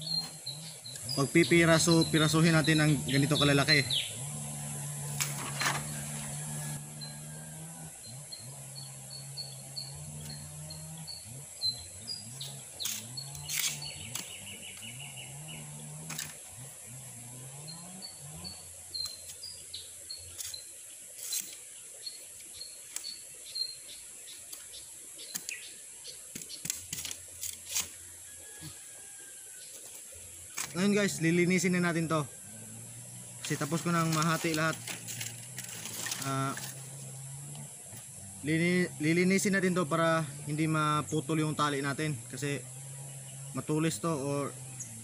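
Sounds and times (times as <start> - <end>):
bird chirping: 0.0 - 7.4, 8.0 - 16.4, 17.0 - 27.9
low wavering hum: 0.0 - 25.3
knife splitting bamboo: 12.4 - 14.9, 15.9 - 16.5, 20.2 - 21.7, 24.4 - 28.0.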